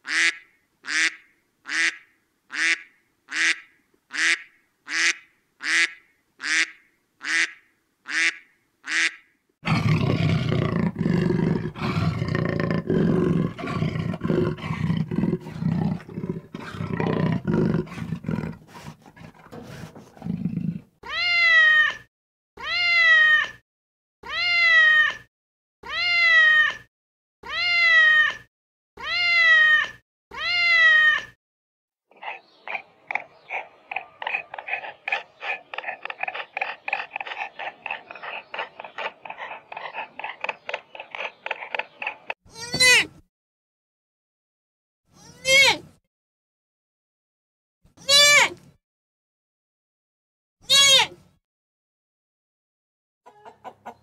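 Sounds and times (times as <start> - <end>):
long falling animal cries: 21.0 - 23.6, 24.2 - 31.4
lower jumble of animal calls: 32.1 - 42.4.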